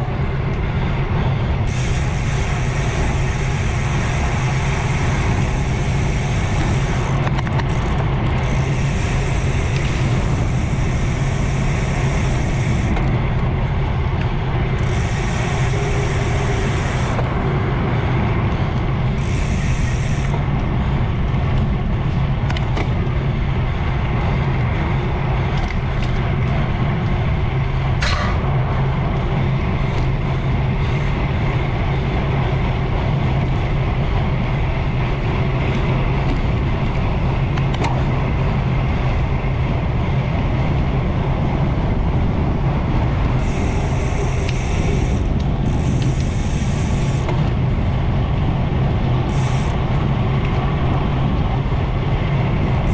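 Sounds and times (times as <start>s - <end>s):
bicycle tyre roar: 0.0s - 52.9s
wind rushing: 0.0s - 52.9s
high hiss: 1.7s - 7.2s, 8.4s - 13.0s, 14.8s - 17.3s, 19.1s - 20.4s, 43.4s - 47.3s, 49.3s - 49.8s.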